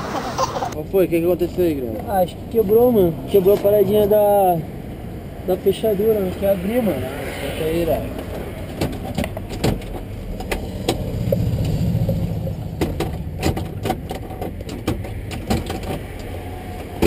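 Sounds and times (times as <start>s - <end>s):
low engine rumble: 7.8s - 17.0s.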